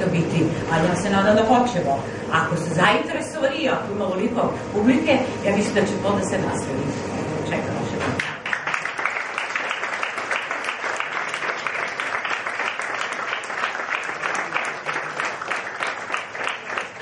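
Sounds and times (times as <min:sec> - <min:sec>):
audience applauding: 0:08.2 - 0:17.0.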